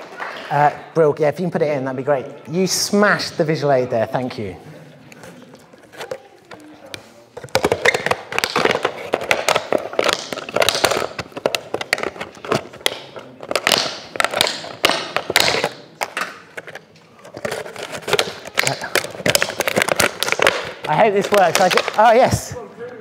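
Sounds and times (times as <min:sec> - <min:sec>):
plastic bottles crinkling: 0:05.1 - 0:22.6.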